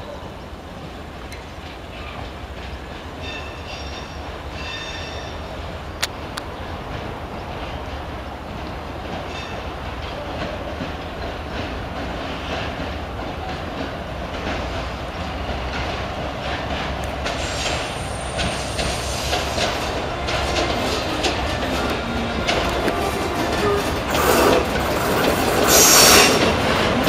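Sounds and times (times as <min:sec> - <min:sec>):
wheels clicking over rail joints: 0:00.8 - 0:05.2, 0:05.9 - 0:27.0
locomotive engine hum: 0:05.4 - 0:27.0
high wheel squeal: 0:23.0 - 0:26.6.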